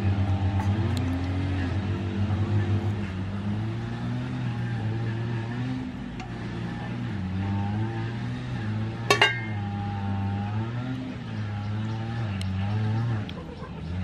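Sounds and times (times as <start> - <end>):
engine running: 0.0 - 14.0
knife clinking on metal lid: 9.1 - 9.6.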